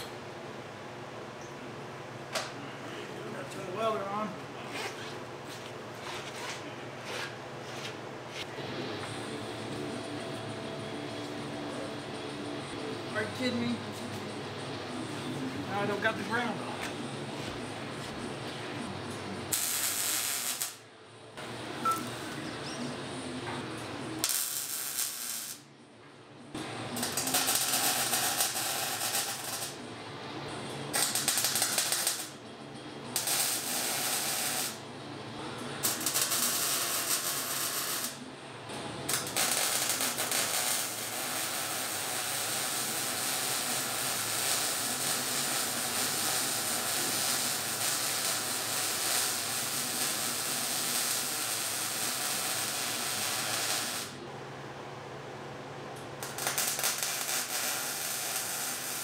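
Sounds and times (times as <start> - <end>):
welder crackling: 19.5 - 20.8, 24.2 - 25.6, 27.0 - 29.8, 30.9 - 32.4, 33.2 - 34.8, 35.8 - 38.2, 39.1 - 54.2, 56.2 - 59.0.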